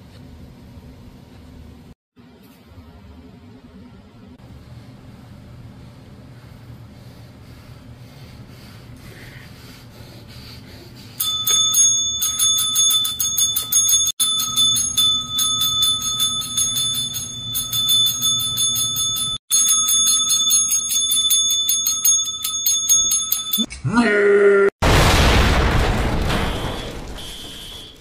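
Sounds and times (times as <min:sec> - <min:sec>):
small metal bell dinging: 0:11.2 - 0:23.7.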